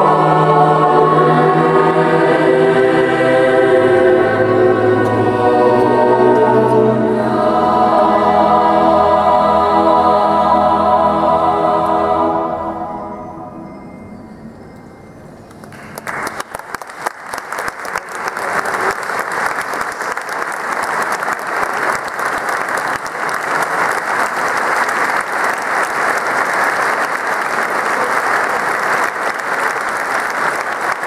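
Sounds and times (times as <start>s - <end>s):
audience applauding: 15.5s - 31.0s.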